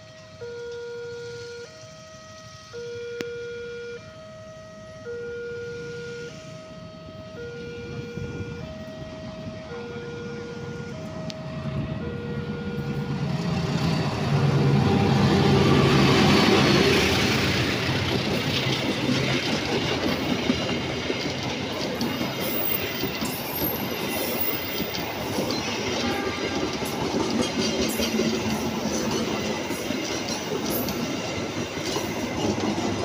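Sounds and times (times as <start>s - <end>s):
two-tone warning signal: 0.0s - 13.5s
diesel locomotive engine: 0.0s - 33.0s
wheels clattering on rail: 13.3s - 33.0s.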